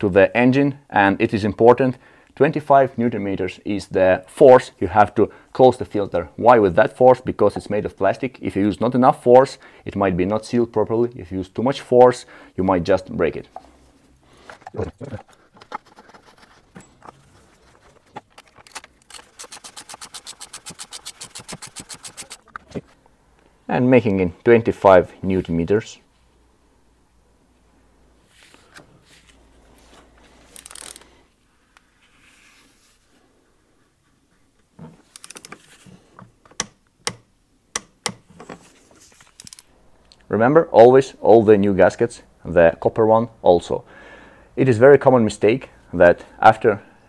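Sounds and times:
ratchet clicking rapidly: 19.1s - 22.4s.

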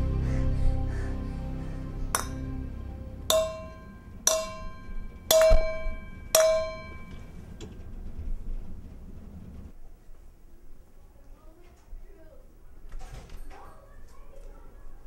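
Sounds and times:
bell-like chime strikes: 3.3s - 7.2s.

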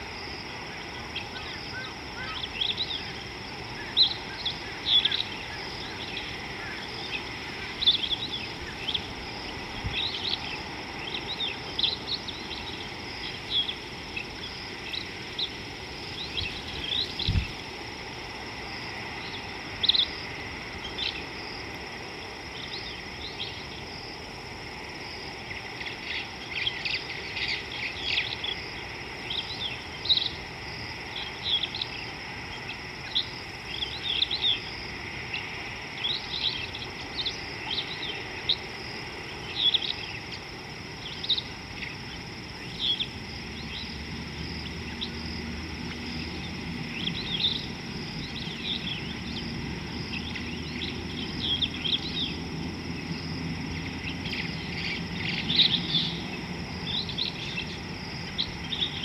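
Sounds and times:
birds chirping: 0.0s - 17.7s, 39.3s - 44.0s, 45.9s - 59.0s
high insect drone: 0.0s - 59.0s
low outdoor background noise: 0.0s - 59.0s.

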